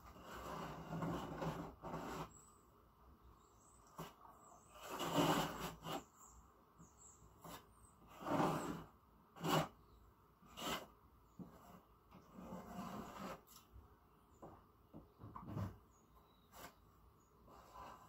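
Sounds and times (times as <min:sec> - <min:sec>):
putty knife scraping: 0:03.9 - 0:06.1, 0:07.4 - 0:09.8, 0:10.5 - 0:13.6.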